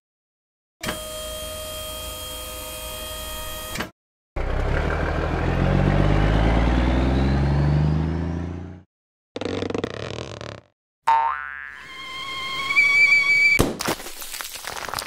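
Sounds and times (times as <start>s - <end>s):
tipper bed mechanical whine: 0.8s - 8.8s
truck engine accelerating: 4.4s - 8.9s.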